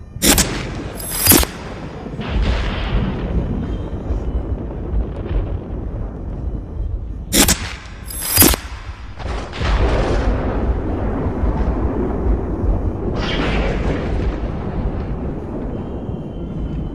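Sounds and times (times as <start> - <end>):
low rumbling: 0.0 - 16.9
loud sharp hits: 0.2 - 3.8, 7.3 - 10.5
sharp boom: 0.2 - 6.5, 7.3 - 15.3.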